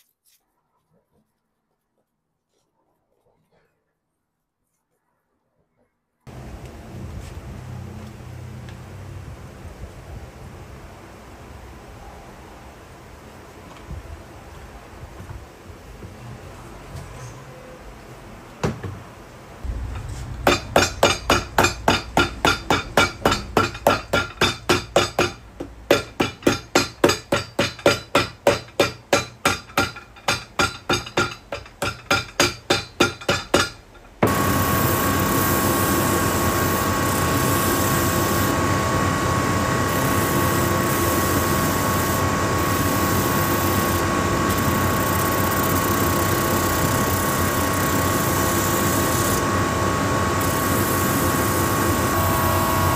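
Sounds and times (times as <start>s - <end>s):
hammer striking shoe sole: 20.5s - 33.8s
sanding belt machine humming: 34.3s - 52.9s.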